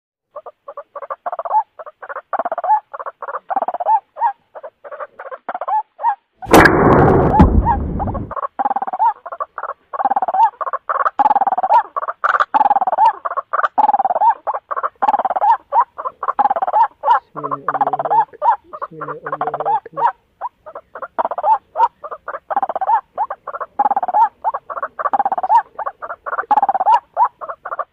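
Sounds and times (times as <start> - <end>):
bird croaking calls: 0.3 - 6.3, 7.0 - 27.9
loud burst of noise: 6.5 - 8.4.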